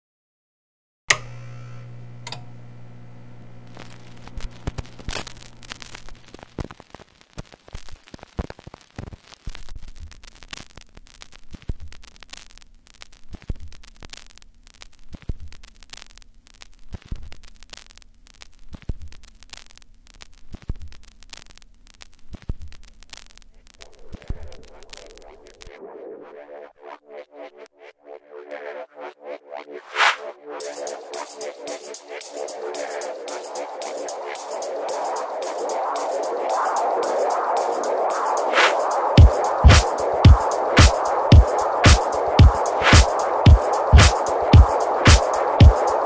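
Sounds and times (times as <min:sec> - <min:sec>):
low mains hum: 0:01.1 - 0:06.6
vinyl record pops: 0:01.1 - 0:25.9, 0:32.2 - 0:46.0
vinyl crackle and static: 0:01.1 - 0:27.7, 0:29.7 - 0:46.0.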